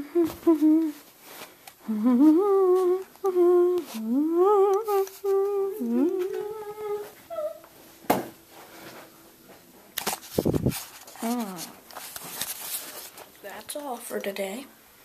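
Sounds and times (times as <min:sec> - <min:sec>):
person humming a slow tune: 0:00.0 - 0:01.0, 0:01.8 - 0:07.7, 0:11.2 - 0:11.8.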